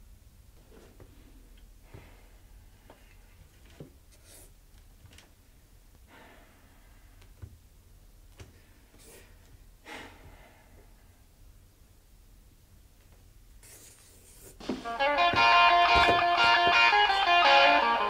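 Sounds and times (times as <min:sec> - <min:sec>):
marker scratching on paper: 0:13.6 - 0:14.6.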